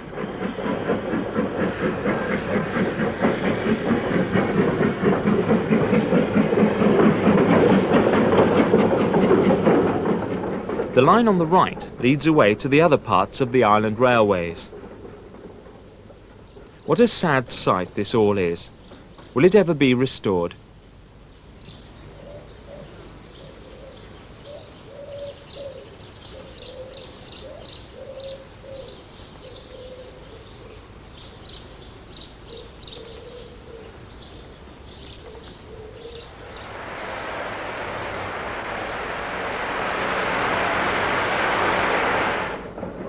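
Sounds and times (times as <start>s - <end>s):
steam locomotive hissing: 0.0s - 20.4s, 35.9s - 43.0s.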